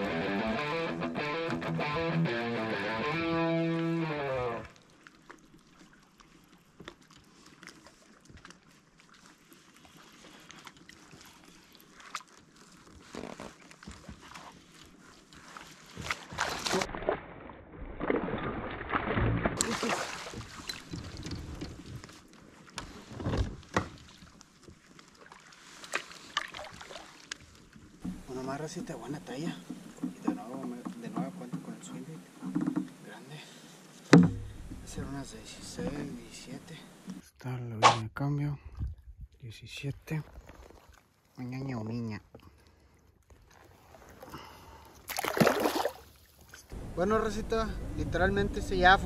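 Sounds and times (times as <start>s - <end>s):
guitar music: 0.0s - 4.7s
faint water sound: 3.7s - 49.0s
small clicks and knocks on hull: 4.7s - 16.8s, 20.3s - 33.1s, 34.0s - 35.0s
net knocking against hull: 34.1s - 34.9s.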